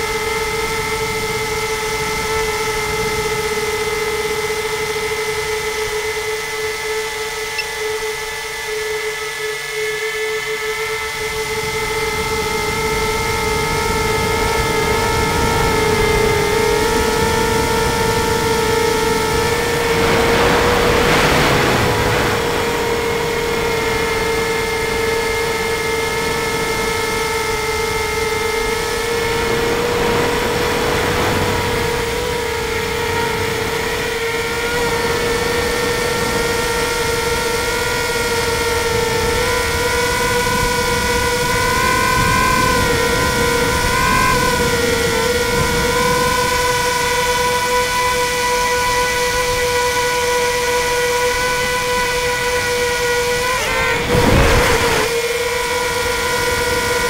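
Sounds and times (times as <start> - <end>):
drone motors and propellers humming: 0.0 - 57.0
wind buffeting microphone: 11.1 - 48.0, 53.4 - 55.1.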